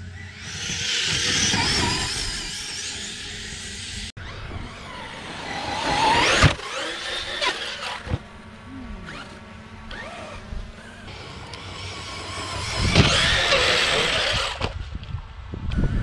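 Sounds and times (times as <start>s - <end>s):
rc car motor whining: 0.0s - 14.8s.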